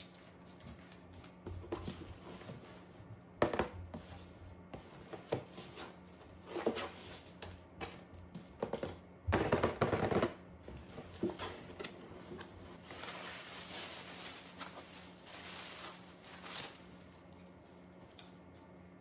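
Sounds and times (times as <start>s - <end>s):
tissue paper crinkling: 12.8s - 18.3s.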